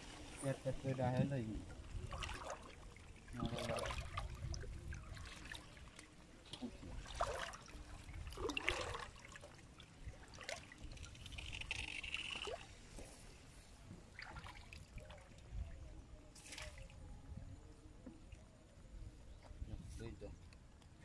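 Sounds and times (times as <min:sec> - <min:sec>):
wind rumble on microphone: 0:00.0 - 0:05.8, 0:15.0 - 0:18.0, 0:18.8 - 0:21.0
shallow water splashing: 0:00.0 - 0:15.5.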